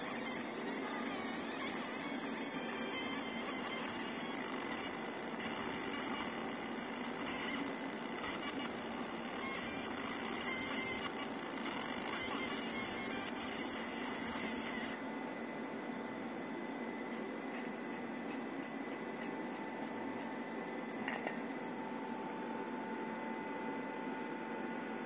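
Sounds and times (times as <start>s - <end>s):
high-pitched buzz: 0.0s - 15.0s
laser marking machine hiss: 0.0s - 15.0s.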